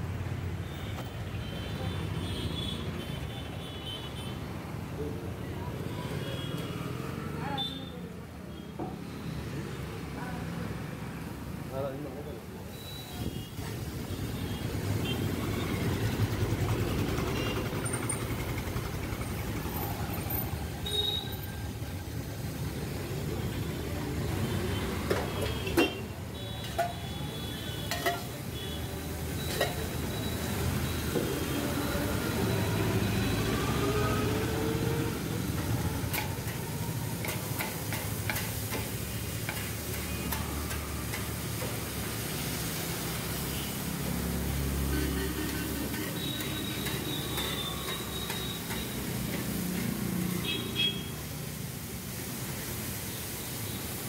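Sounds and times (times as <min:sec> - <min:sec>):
vegetables sizzling on a griddle: 0:12.7 - 0:54.0.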